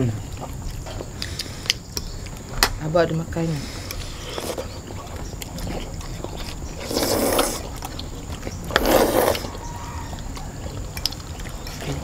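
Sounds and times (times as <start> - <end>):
loud noodle slurps: 6.8 - 7.7, 8.7 - 9.6.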